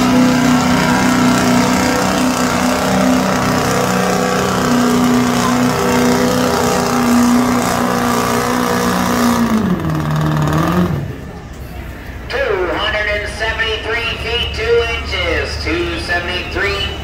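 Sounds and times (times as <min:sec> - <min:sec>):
engine running at high revs: 0:00.0 - 0:12.1.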